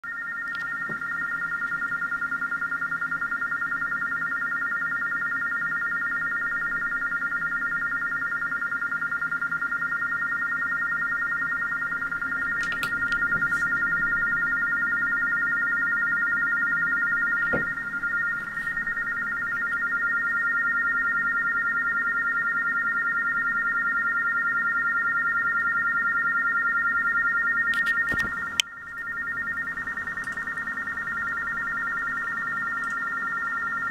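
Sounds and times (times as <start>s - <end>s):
warbling two-tone data signal: 0.0s - 33.9s.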